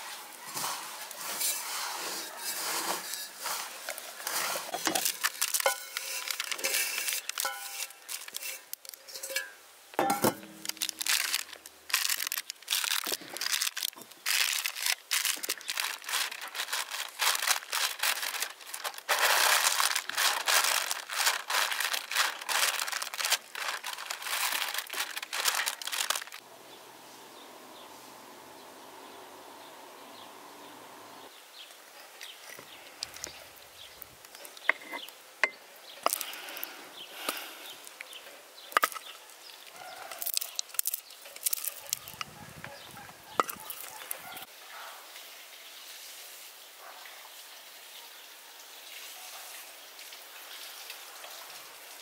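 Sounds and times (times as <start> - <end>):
hands crumbling dry mixture: 3.4 - 8.9, 10.5 - 26.4, 39.7 - 42.2.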